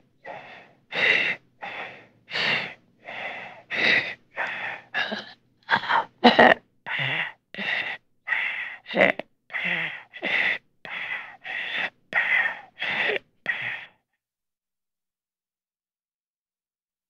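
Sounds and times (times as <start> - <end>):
person gasping breaths: 0.2 - 6.3, 6.9 - 14.0.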